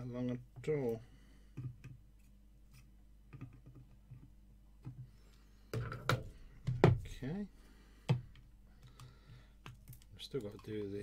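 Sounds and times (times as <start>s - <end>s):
low steady hum: 0.0s - 11.0s
small clicks and taps: 8.1s - 11.0s.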